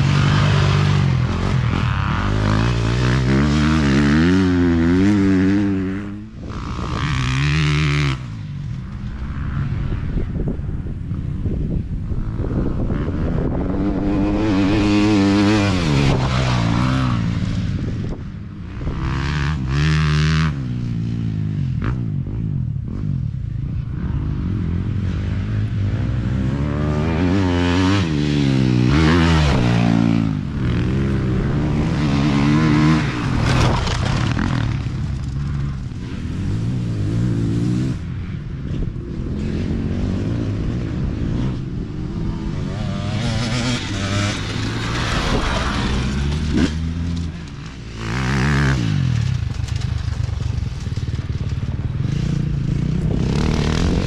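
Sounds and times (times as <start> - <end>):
dirt bike engines revving: 0.0 - 54.0.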